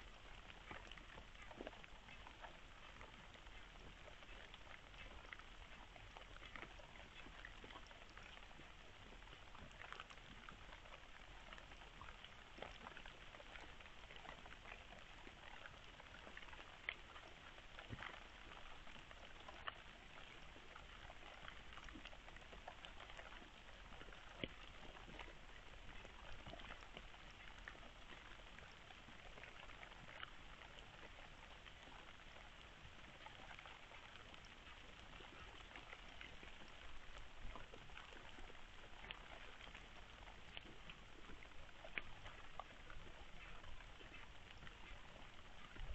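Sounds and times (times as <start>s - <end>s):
faint steady hiss: 0.0s - 45.9s
soft ticks and clicks: 0.0s - 45.9s.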